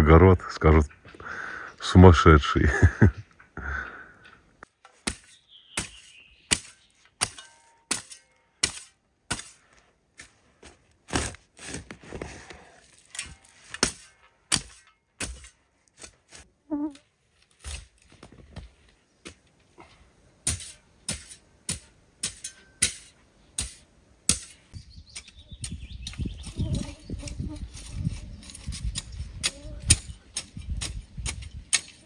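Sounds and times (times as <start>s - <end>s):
garden hoe chopping soil: 4.8s - 12.0s, 13.2s - 16.5s, 20.4s - 26.6s, 27.2s - 32.0s.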